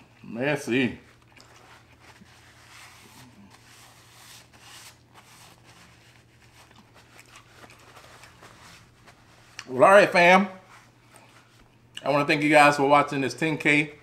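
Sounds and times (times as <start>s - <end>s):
eating and chewing noises: 0.0s - 0.4s, 1.0s - 3.7s, 5.9s - 9.7s
food rustling and clicks: 1.1s - 2.4s, 5.0s - 9.7s.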